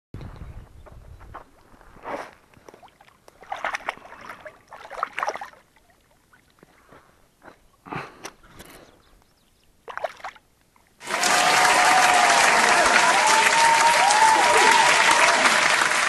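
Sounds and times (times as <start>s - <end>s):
fish splashing in shallow water: 2.1s - 6.8s, 9.8s - 10.5s.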